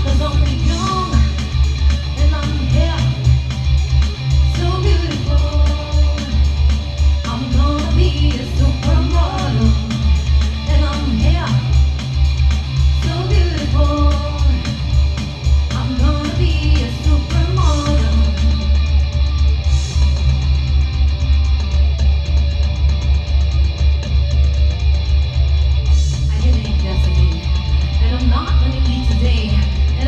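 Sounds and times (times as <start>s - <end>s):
person singing: 0.0s - 3.4s, 4.4s - 6.6s, 7.2s - 11.8s, 13.0s - 14.9s, 15.7s - 19.0s
live rock band playing: 0.0s - 30.0s.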